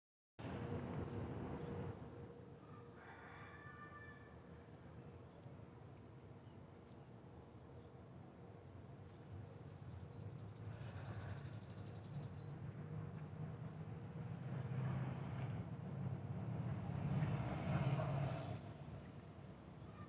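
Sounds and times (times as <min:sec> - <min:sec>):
low rumble of vehicles: 0:00.4 - 0:20.0
bird singing a fast trill: 0:00.8 - 0:01.7, 0:09.5 - 0:13.7.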